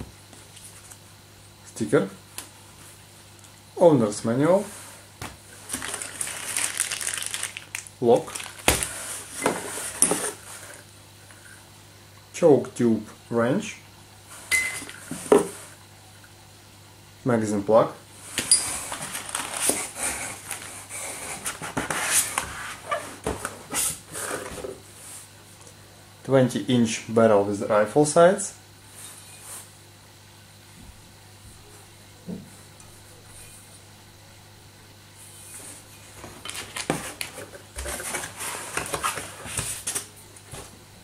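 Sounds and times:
knocks and scrapes of handling: 35.3s - 40.0s.

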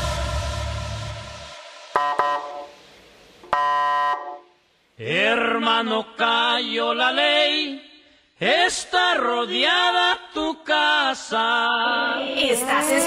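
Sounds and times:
bass-heavy dance track: 0.0s - 1.6s
short electronic tones: 2.0s - 2.8s, 3.5s - 4.5s
chanted vocal: 8.5s - 13.0s.

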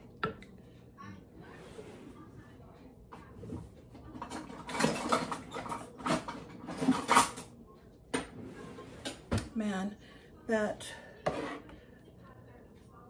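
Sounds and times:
utensils scraping and clinking on glass: 4.2s - 7.4s.

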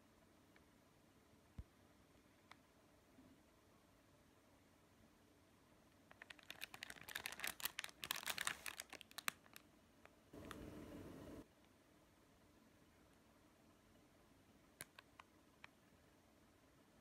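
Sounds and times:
plastic wrapper crinkling: 6.1s - 9.6s.

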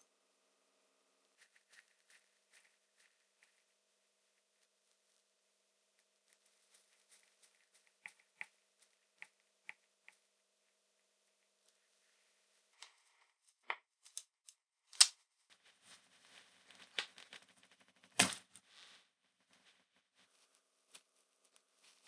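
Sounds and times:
soft rustling: 1.3s - 13.4s, 19.6s - 22.0s.

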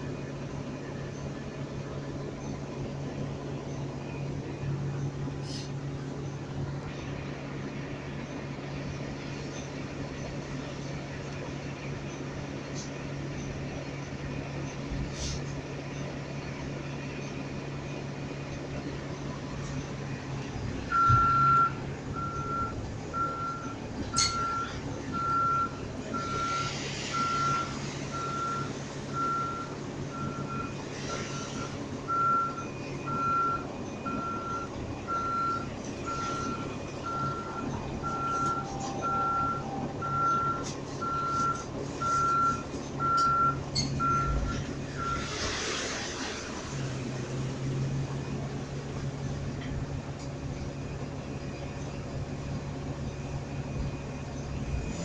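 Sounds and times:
vehicle backup alarm beeping: 20.9s - 45.4s.

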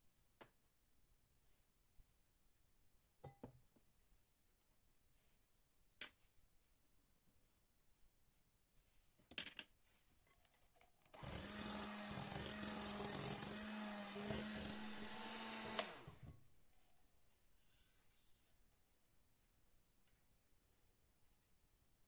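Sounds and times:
electric mixer running: 11.2s - 16.2s.

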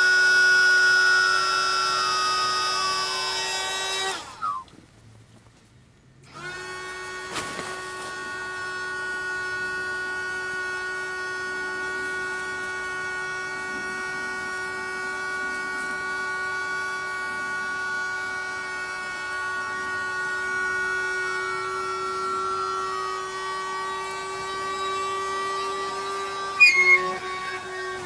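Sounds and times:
electric air pump whining: 0.0s - 4.6s, 6.2s - 28.0s.

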